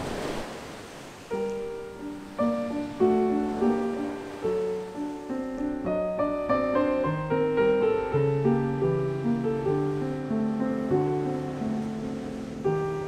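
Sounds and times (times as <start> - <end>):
slow piano melody: 1.2 - 13.0.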